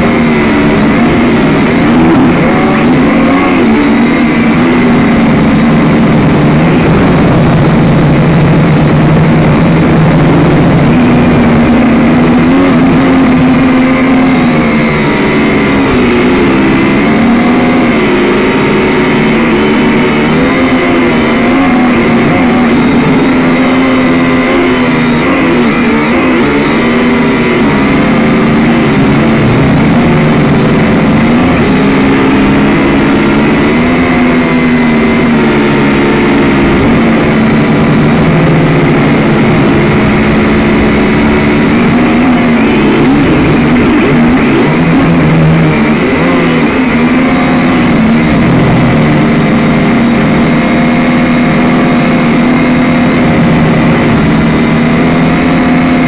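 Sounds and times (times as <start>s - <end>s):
drone motors and propellers buzzing: 0.0s - 56.0s.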